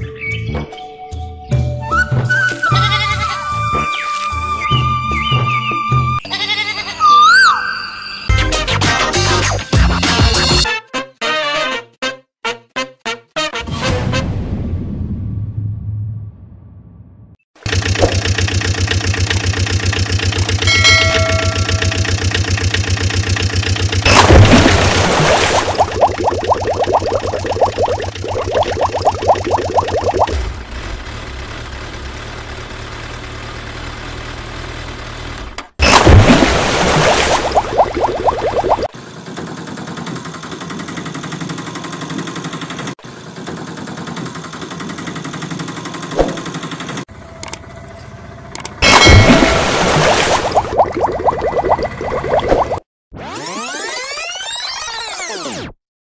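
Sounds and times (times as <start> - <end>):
engine idling with rapid knocking: 17.6 - 24.5, 30.5 - 35.6, 38.9 - 47.1
clicks: 19.2 - 19.5.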